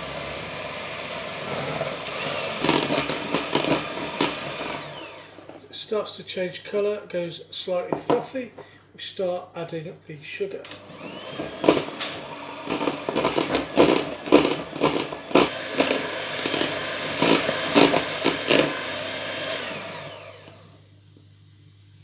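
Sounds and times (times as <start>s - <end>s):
electric mixer motor running: 0.0s - 5.6s, 10.8s - 20.9s.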